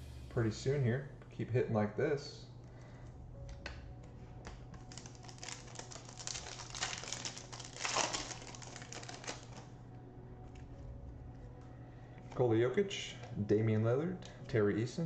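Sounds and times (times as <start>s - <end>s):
card pack wrapper tearing: 4.5s - 9.7s.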